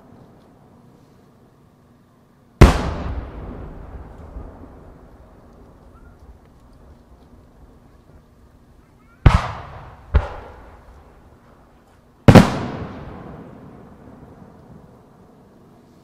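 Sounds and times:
firework booms with echo: 2.6 - 5.9, 9.2 - 11.1, 12.2 - 14.5.

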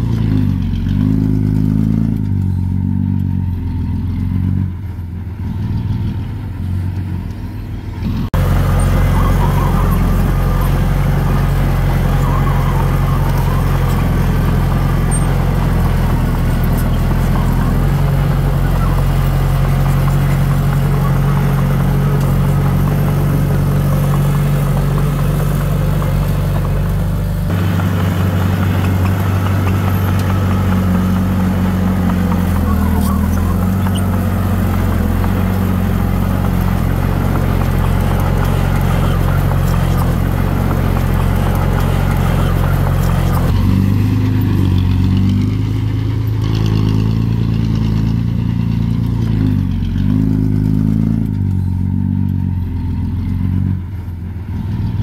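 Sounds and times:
diesel engine running under load: 0.0 - 55.0.

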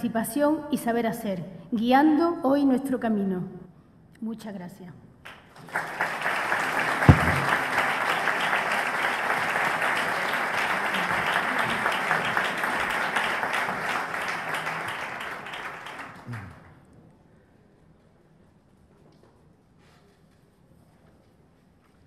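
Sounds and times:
audience applauding: 5.6 - 16.7
dull thump: 7.1 - 7.6.

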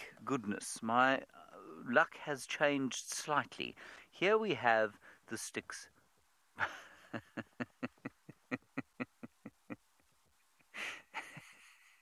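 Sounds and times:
man laughing: 6.6 - 12.0.

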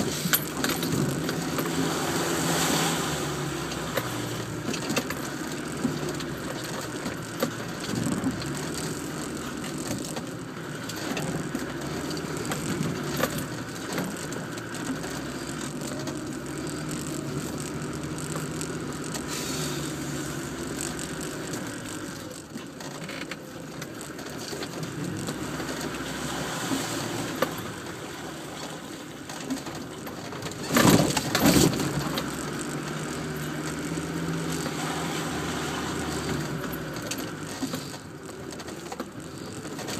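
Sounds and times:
car body rattling and knocking: 0.0 - 2.4, 27.1 - 34.8
engine running at low speed: 0.0 - 39.9
loud jolting clatter: 0.0 - 39.9.

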